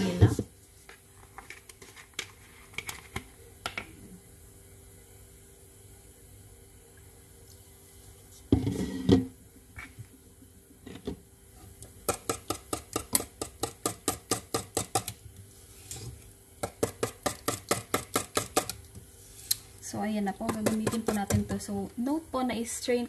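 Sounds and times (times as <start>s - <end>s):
whisk clicking against metal bowl: 20.5s - 21.6s.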